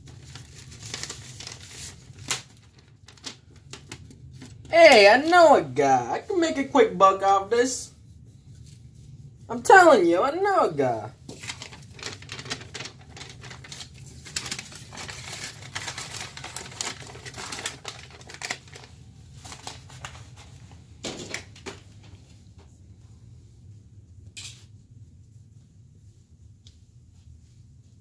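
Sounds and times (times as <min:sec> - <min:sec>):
paper rustling and crackling: 0:00.0 - 0:06.7, 0:10.6 - 0:22.5.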